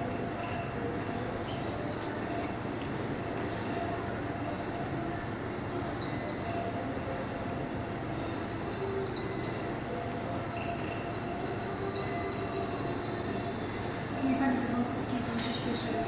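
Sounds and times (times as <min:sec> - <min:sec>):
cash register beeps: 0:06.0 - 0:06.8, 0:08.2 - 0:13.4.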